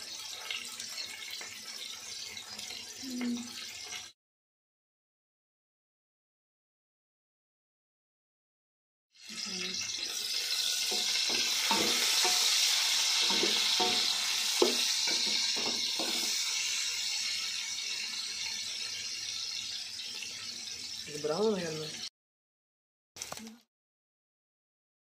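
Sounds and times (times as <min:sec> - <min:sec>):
onions sizzling in hot oil: 0:00.0 - 0:04.2, 0:09.2 - 0:22.1
wooden spoon knocking a pot: 0:10.9 - 0:12.6, 0:13.2 - 0:16.4.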